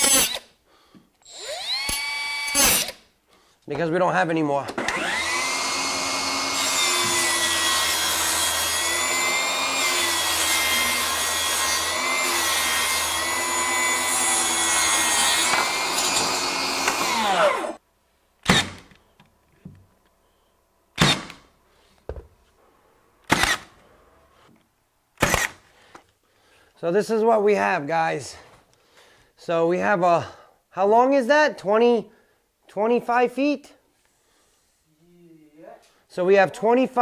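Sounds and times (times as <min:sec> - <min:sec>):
brad nailer firing: 0:00.0 - 0:00.5, 0:01.6 - 0:03.0, 0:04.8 - 0:17.8, 0:18.4 - 0:19.0, 0:21.0 - 0:21.5, 0:23.2 - 0:23.7, 0:25.2 - 0:25.6
table saw ripping a board: 0:00.0 - 0:00.5, 0:01.5 - 0:03.0, 0:04.8 - 0:17.8, 0:18.4 - 0:18.9, 0:21.0 - 0:21.5, 0:23.3 - 0:23.7.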